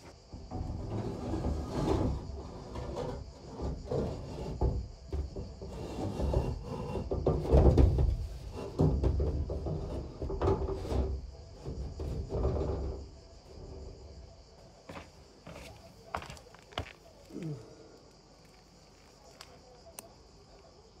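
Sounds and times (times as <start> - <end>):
wooden scraping and rubbing: 0.0 - 17.4.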